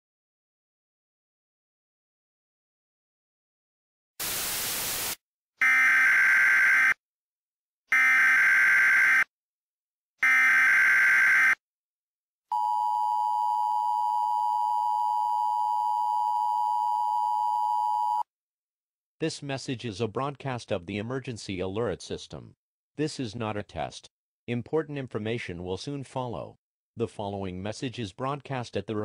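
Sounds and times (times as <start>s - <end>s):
static hiss burst: 4.2s - 5.2s.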